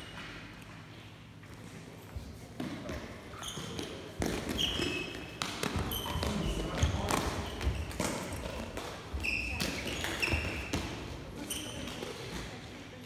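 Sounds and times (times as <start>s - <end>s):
sneakers squeaking on gym floor: 2.2s - 12.6s.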